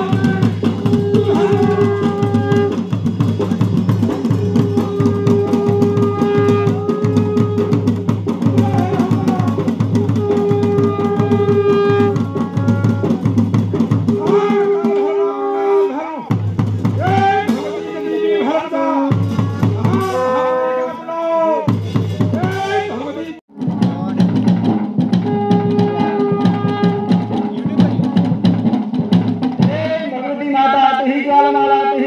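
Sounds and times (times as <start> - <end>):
held melodic note: 0.0 - 8.0
fast steady drumming: 0.0 - 15.2, 16.2 - 18.0, 19.1 - 20.5, 21.7 - 30.1.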